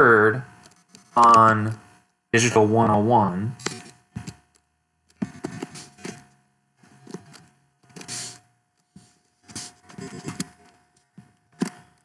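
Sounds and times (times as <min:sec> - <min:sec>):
faint steady hum: 0:00.0 - 0:12.0
keyboard typing: 0:05.1 - 0:06.2, 0:07.0 - 0:08.4, 0:09.5 - 0:10.7.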